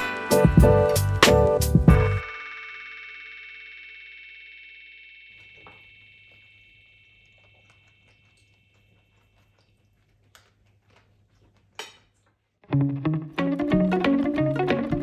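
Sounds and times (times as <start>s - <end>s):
held music chord: 12.7s - 15.0s.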